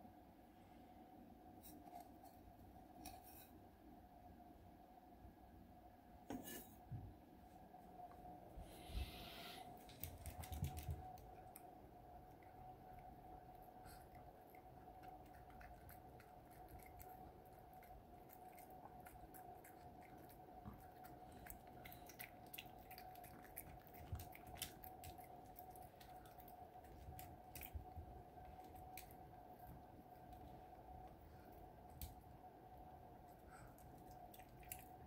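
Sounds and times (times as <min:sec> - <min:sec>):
faint steady hum: 0:00.0 - 0:35.0
dog licking and chewing: 0:14.0 - 0:30.4.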